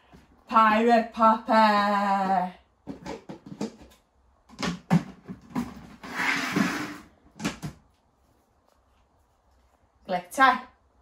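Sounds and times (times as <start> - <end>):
plastic lid knocking on bucket: 2.8 - 3.9
rustling scrape: 5.7 - 7.2.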